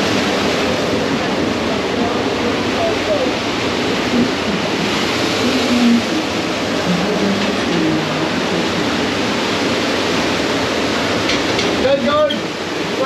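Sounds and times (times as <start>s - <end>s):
water rushing and sloshing: 0.0s - 13.0s.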